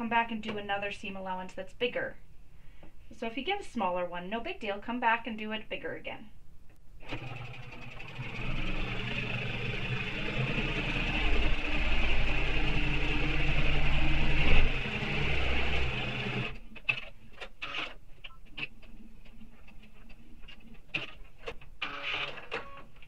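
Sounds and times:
electric sewing machine running: 7.0 - 16.6.

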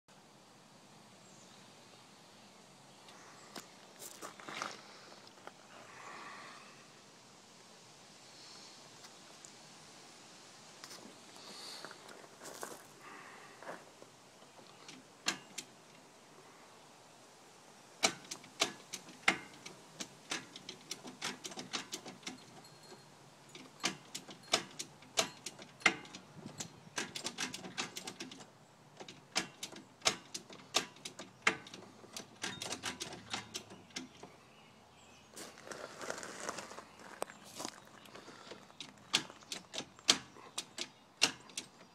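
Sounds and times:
gear shifter clicking: 23.6 - 28.4.

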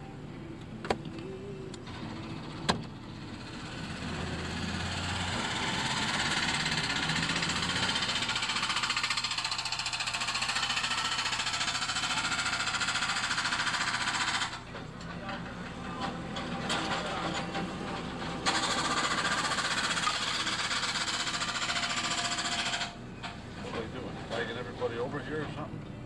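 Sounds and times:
car engine: 0.9 - 25.4.

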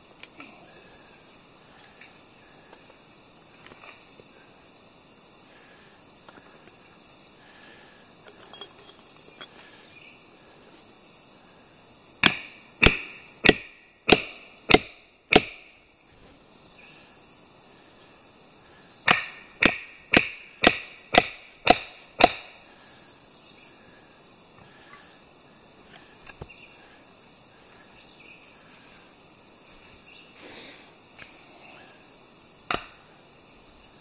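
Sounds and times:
hammer striking a wedge: 12.2 - 15.7, 19.1 - 22.5.

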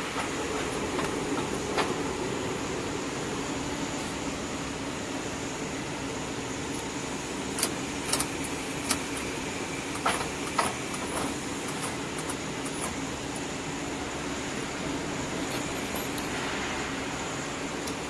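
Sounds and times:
braiding machinery humming: 0.0 - 18.0
sharp metallic clinks: 15.3 - 16.6, 17.4 - 18.0.

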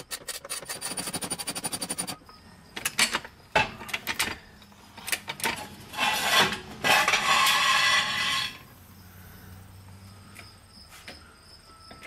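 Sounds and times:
rasping metal scrape: 5.6 - 8.7.

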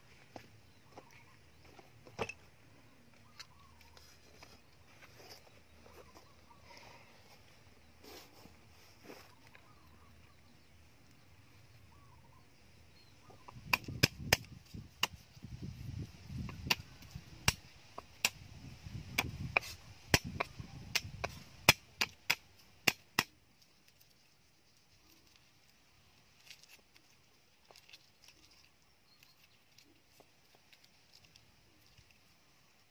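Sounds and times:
faint handling: 0.0 - 11.9.

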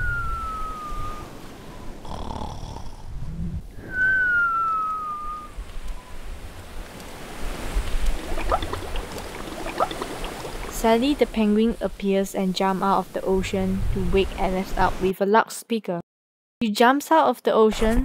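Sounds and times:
falling whistle: 0.0 - 2.0, 3.7 - 6.2
rasping cartoon snore: 2.0 - 3.2
faint bubbling pops: 7.9 - 10.9.

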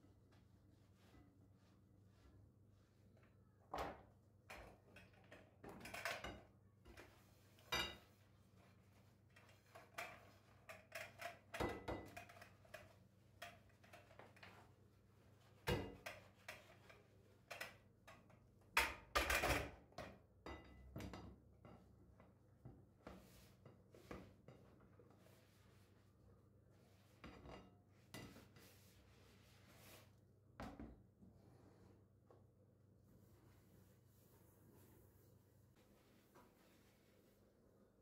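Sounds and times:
dishes clinking in a sink: 7.6 - 8.2, 11.6 - 12.2, 20.4 - 21.9.

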